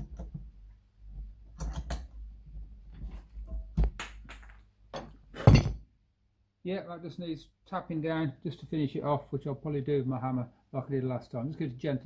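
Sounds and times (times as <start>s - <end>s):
metal clamp creaks and knocks: 1.6s - 2.1s.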